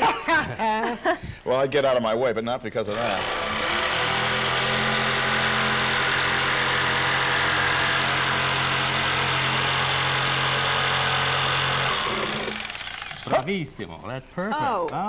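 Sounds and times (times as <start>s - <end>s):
jigsaw cutting wood: 2.9s - 13.5s.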